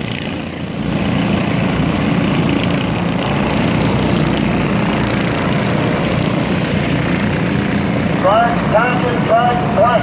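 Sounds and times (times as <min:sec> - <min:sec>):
small race car engines buzzing: 0:00.0 - 0:10.0.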